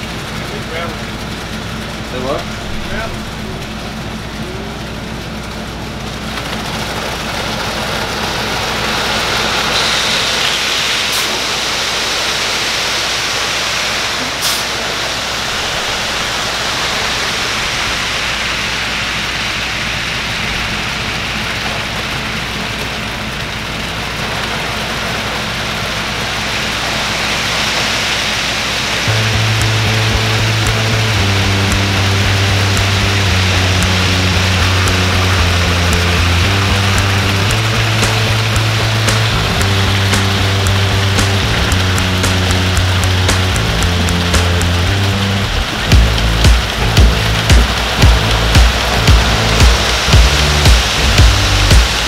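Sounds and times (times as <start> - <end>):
concrete pouring down chute: 0.0 - 52.0
truck engine hum: 0.0 - 52.0.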